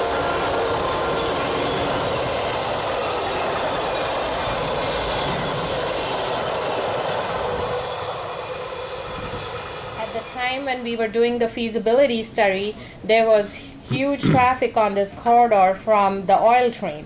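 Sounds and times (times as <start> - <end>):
train wheels rumbling on rail: 0.0 - 11.7.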